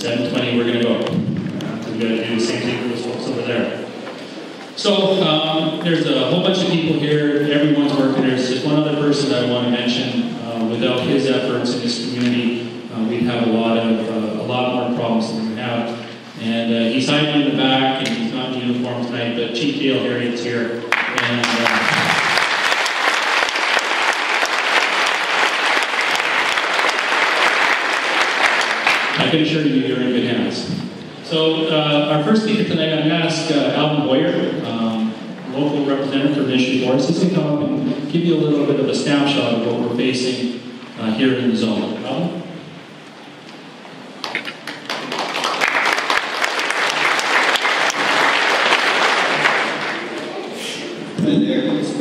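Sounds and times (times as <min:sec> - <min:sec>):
audience applauding: 0:20.9 - 0:29.4, 0:44.2 - 0:50.6.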